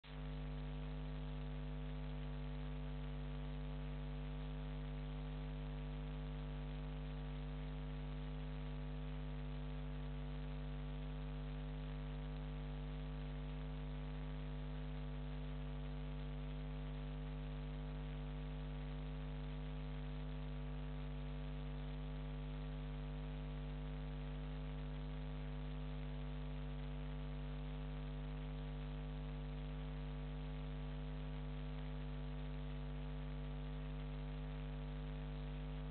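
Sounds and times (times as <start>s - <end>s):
electrical mains hum: 0.1s - 35.9s.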